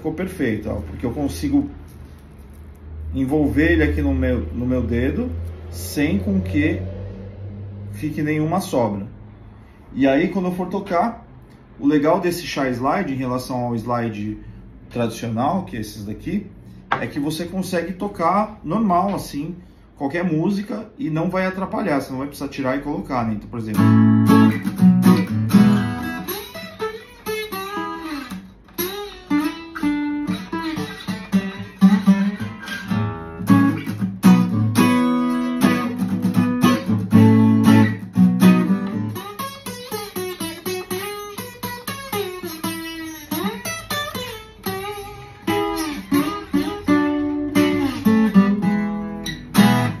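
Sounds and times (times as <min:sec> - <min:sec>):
slide acoustic guitar: 0:23.4 - 0:50.0.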